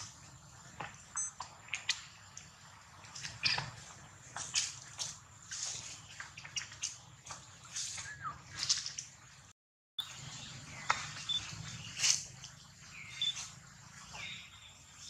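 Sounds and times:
animal chirps and squeaks: 13.1s - 13.5s.

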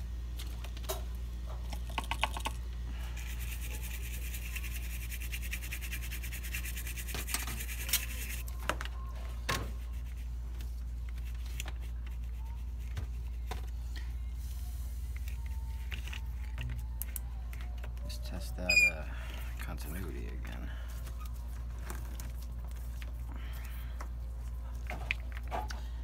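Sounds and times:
low electrical hum: 0.0s - 26.0s
brush scrubbing circuit board: 3.2s - 8.4s.

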